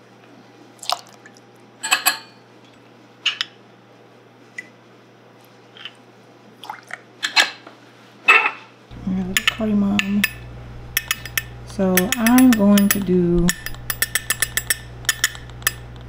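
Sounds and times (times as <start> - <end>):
glassware clinking: 9.0 - 16.0.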